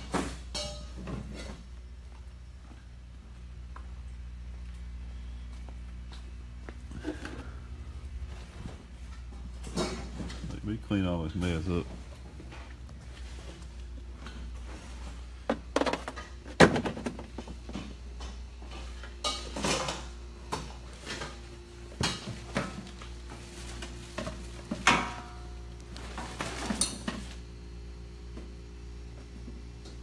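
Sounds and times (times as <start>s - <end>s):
low hum: 0.3s - 15.5s.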